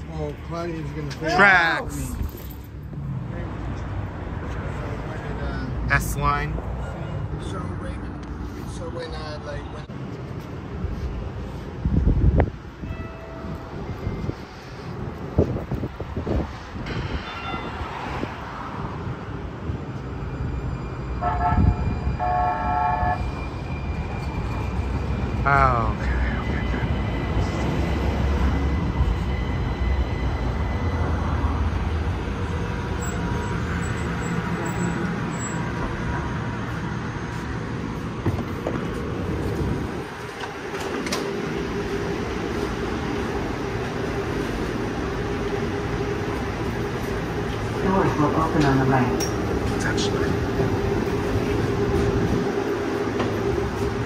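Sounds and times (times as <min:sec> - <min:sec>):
low rumble of rail traffic: 0:00.0 - 0:54.0
train doors opening: 0:12.7 - 0:25.4, 0:26.5 - 0:54.0
train horn blasts: 0:21.2 - 0:23.3.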